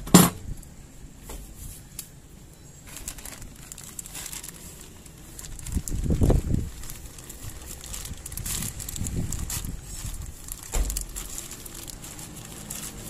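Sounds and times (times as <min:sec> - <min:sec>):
plastic bag crinkling: 0:02.8 - 0:13.0.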